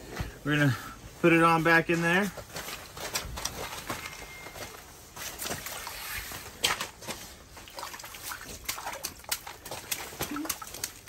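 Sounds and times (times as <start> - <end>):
water splashing in ice hole: 5.2 - 11.0.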